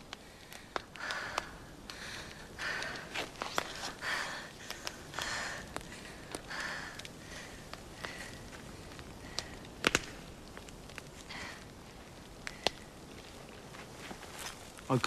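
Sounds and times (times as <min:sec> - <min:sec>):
campfire crackling: 0:00.0 - 0:15.0
heavy breathing: 0:00.1 - 0:09.9, 0:11.2 - 0:13.1.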